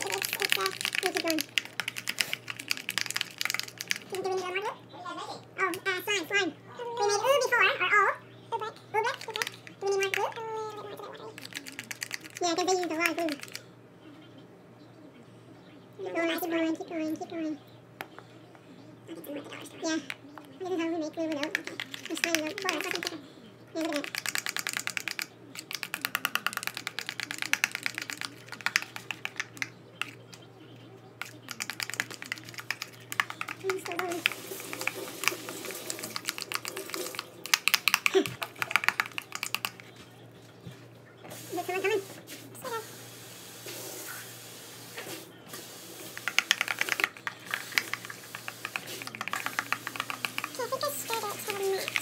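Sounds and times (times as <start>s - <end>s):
spoon stirring in plastic bowl: 0.0s - 4.4s, 9.0s - 13.6s, 20.0s - 23.2s, 23.8s - 40.9s, 46.0s - 52.0s.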